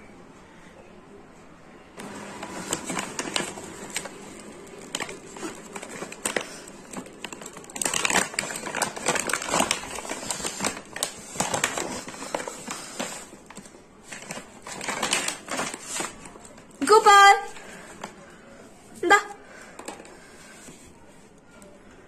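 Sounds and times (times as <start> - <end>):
plastic pouch crinkling: 2.0 - 16.8.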